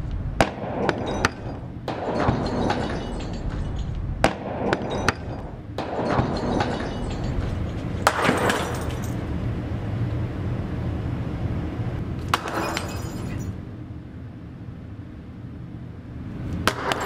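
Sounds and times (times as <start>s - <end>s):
steady low hum: 0.0s - 17.0s
glass light bulbs shattering: 2.2s - 4.0s, 6.1s - 9.2s, 12.3s - 13.6s
crackling glass fragments: 2.4s - 4.0s, 6.3s - 9.2s, 12.4s - 13.6s.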